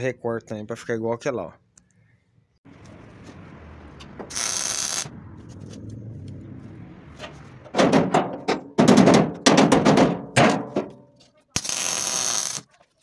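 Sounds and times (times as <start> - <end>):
sharp knocks on metal: 7.7 - 11.0.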